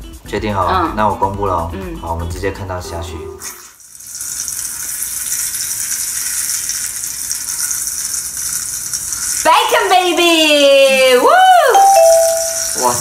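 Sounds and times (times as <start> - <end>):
bacon sizzling in a frying pan: 3.4 - 13.0.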